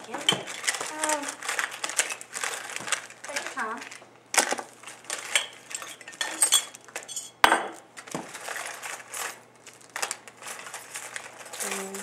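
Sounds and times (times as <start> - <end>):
rummaging through a bag: 0.0 - 5.8, 8.2 - 12.0
glass jar clinking down: 5.4 - 7.7.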